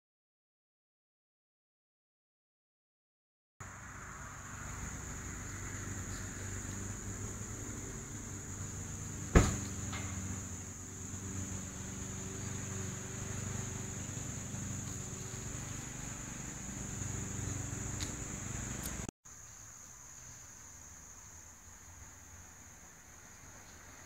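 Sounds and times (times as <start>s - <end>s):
low hum: 3.6s - 19.1s
high-pitched insect chorus: 3.6s - 24.0s
sharp knock: 9.3s - 9.7s.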